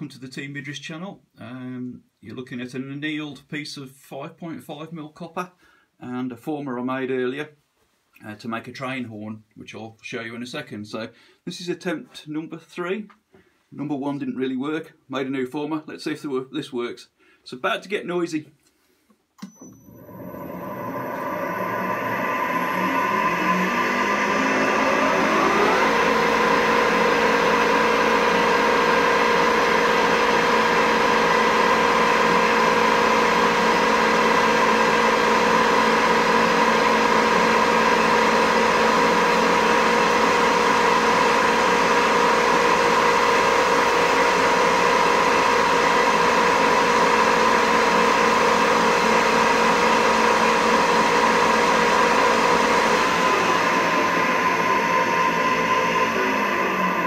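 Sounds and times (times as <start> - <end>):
metal lathe whining: 19.9 - 57.0.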